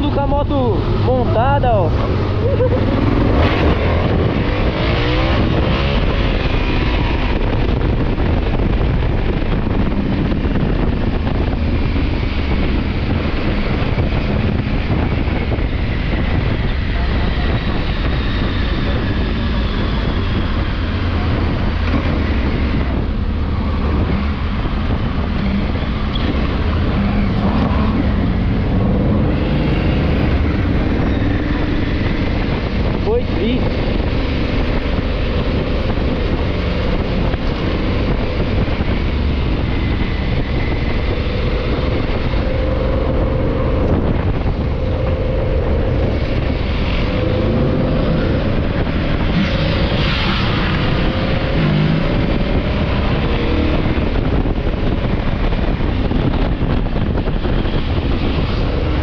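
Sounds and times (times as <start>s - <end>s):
wind noise on microphone: 0.0s - 59.0s.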